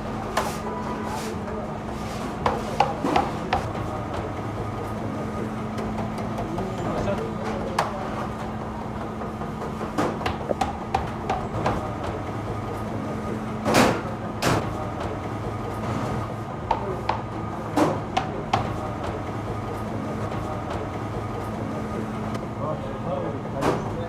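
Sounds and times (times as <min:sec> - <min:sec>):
steady machine hum: 0:01.4 - 0:24.0
sharp knocks and clatters: 0:05.7 - 0:12.2.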